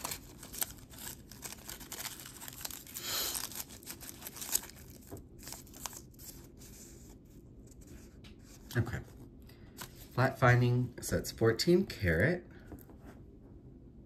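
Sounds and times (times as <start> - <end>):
packaging crinkling and rustling: 0.0 - 7.2.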